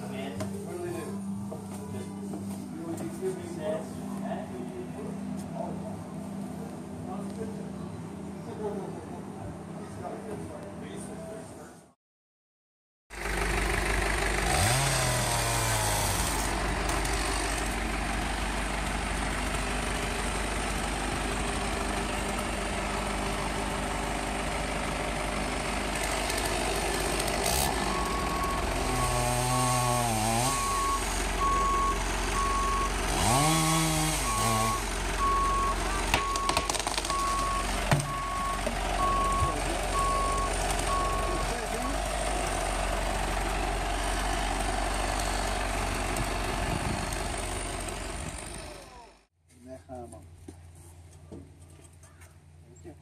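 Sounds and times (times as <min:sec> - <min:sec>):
truck engine running: 0:13.1 - 0:49.3
back-up alarm beeping: 0:30.4 - 0:33.4, 0:34.2 - 0:41.5.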